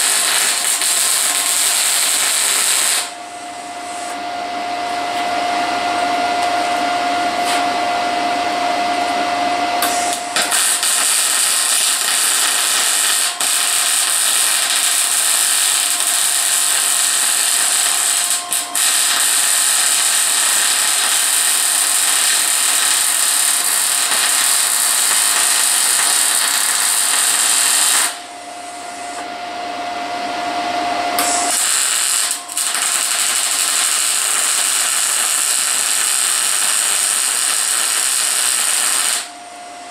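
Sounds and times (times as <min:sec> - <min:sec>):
welding arc hissing: 0:00.0 - 0:03.2, 0:09.8 - 0:28.3, 0:31.2 - 0:39.3.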